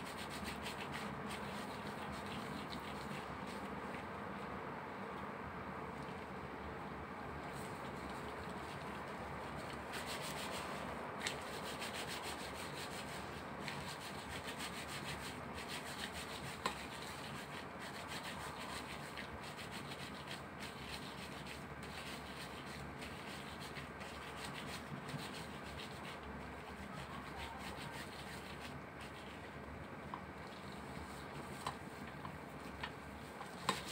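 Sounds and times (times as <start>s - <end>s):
gloved hands rubbing meat: 0.0s - 4.5s, 7.4s - 33.9s.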